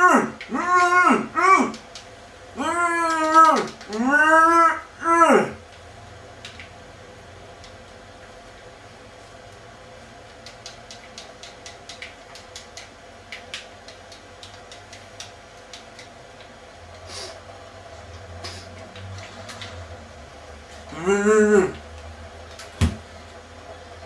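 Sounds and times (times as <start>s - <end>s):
game controller buttons clicking: 3.1s - 4.0s, 10.3s - 16.2s.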